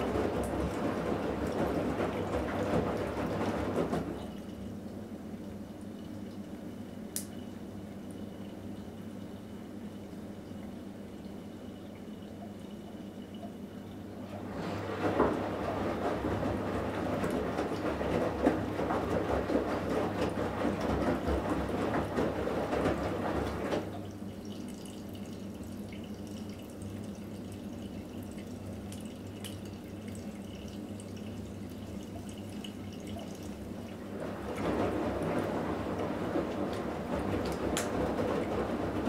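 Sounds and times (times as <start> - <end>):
washing machine drum sloshing: 0.0 - 39.0
faint steady hum: 4.2 - 14.4.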